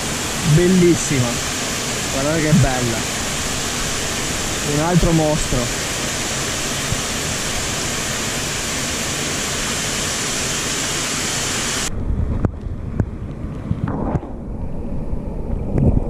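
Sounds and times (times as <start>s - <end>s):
muffled underwater water sound: 0.0s - 9.0s
rushing water of a torrent: 0.0s - 11.9s.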